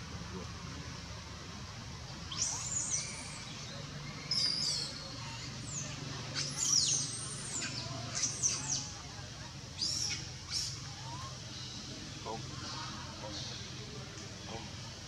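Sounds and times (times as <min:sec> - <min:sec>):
animal chirps and squeaks: 0:04.2 - 0:08.9.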